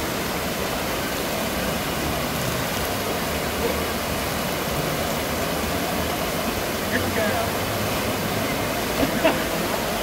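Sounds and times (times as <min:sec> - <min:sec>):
water rushing: 0:00.0 - 0:10.0.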